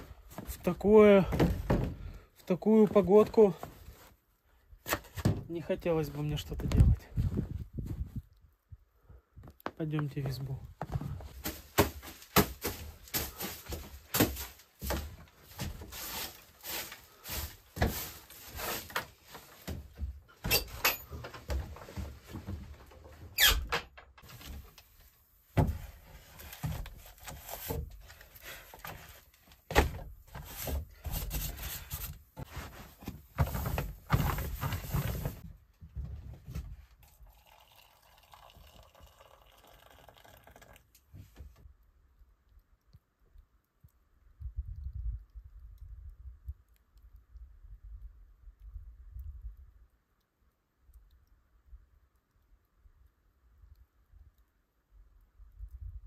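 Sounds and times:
water poured into metal mug: 37.0s - 40.9s.

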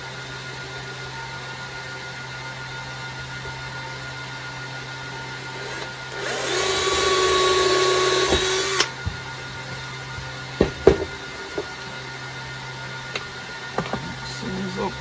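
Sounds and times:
cordless drill drilling wood: 4.8s - 9.1s
drill knocking on bench: 5.7s - 9.2s, 10.6s - 11.7s.

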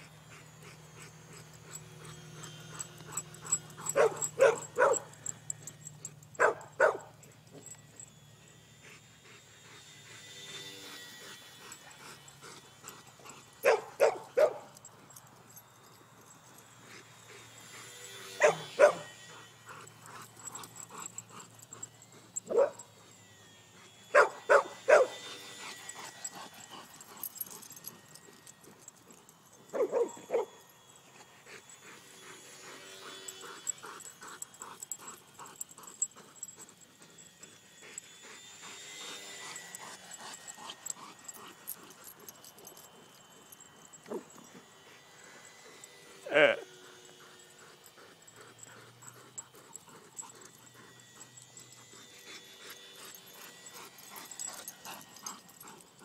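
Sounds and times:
dogs barking: 0.7s - 5.5s, 6.3s - 7.3s, 11.7s - 14.8s, 18.3s - 23.0s, 24.1s - 25.3s, 29.7s - 30.6s.

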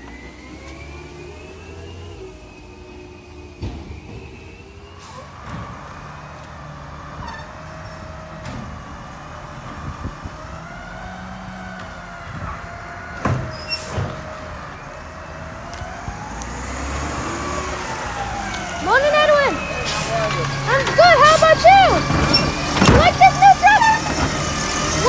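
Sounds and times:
garbage truck running: 0.0s - 25.0s.

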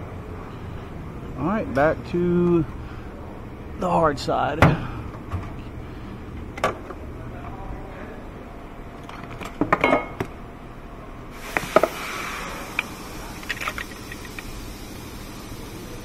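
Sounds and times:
steady hiss: 11.3s - 16.0s.

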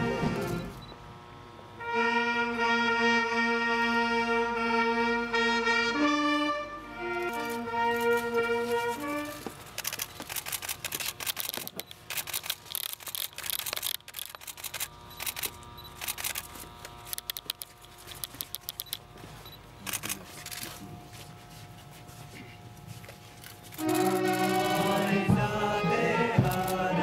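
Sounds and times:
camera shutters clicking: 7.2s - 8.3s, 9.8s - 19.0s, 19.8s - 20.7s, 23.4s - 25.2s, 26.5s - 26.8s.

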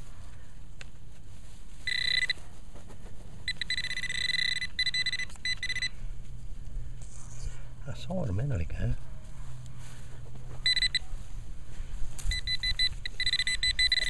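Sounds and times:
pinpointer probe beeping: 1.8s - 2.4s, 3.4s - 6.0s, 10.6s - 11.1s, 12.2s - 14.0s.

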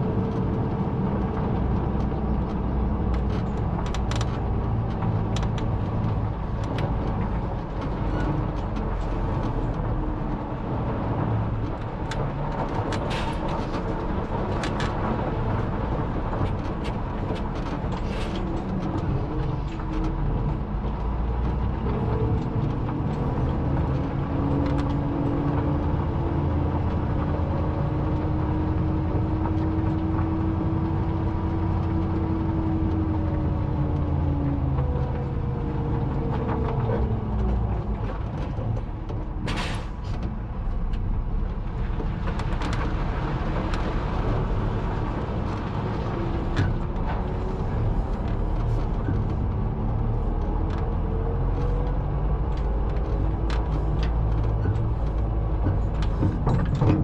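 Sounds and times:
knocks and clatters: 0.3s - 57.0s.

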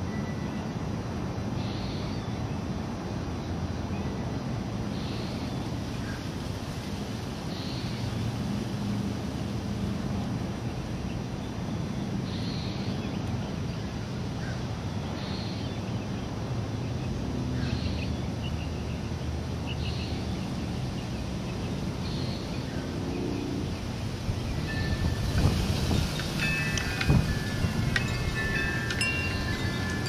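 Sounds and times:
wind on microphone: 23.2s - 30.0s
wind chimes ringing: 24.3s - 30.0s.

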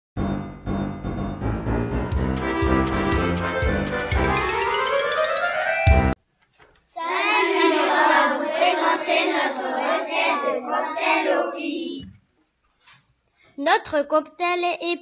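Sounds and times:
music: 0.2s - 6.2s
children chorusing a greeting: 7.0s - 12.0s.

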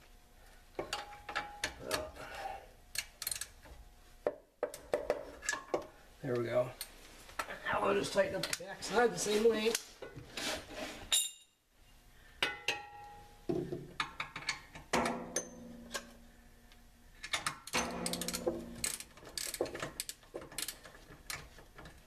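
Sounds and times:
ratchet wrench clicking: 2.9s - 3.5s, 18.0s - 20.9s
metal tools clinking: 17.7s - 19.6s.

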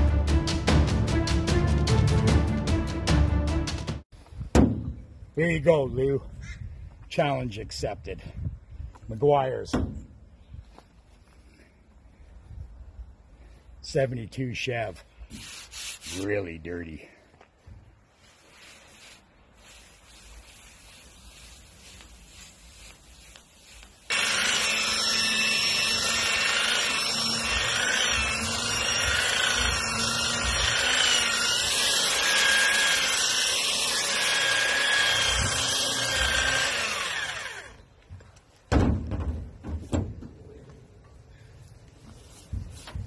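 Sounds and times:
cloth rubbing car paint: 15.3s - 16.3s, 18.2s - 24.1s
electric polisher motor whine: 24.1s - 33.0s, 34.4s - 37.8s
knocks: 38.7s - 40.4s.

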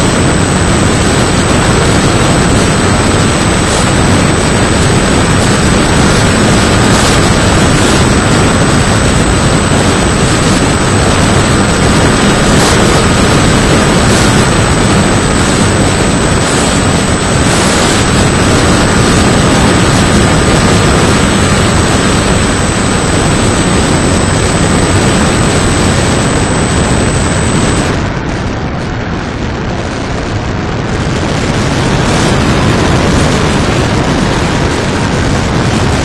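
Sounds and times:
electric motor whine: 0.0s - 28.6s
wind rush over microphone: 0.0s - 36.0s.

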